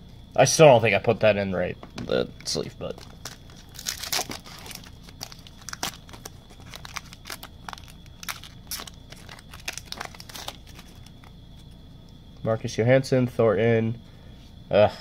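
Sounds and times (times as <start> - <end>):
card sleeves crinkling and clicking: 2.4 - 11.4.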